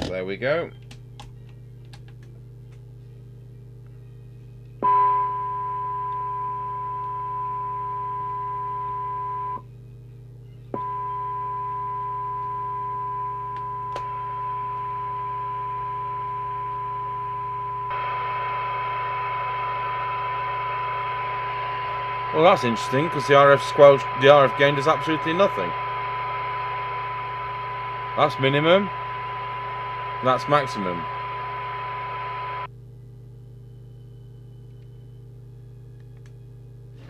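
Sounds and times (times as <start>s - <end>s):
steady test tone: 4.8s - 9.6s, 10.8s - 32.7s
radio loudspeaker hum: 10.8s - 32.7s
click: 34.7s - 34.9s, 36.0s - 36.4s.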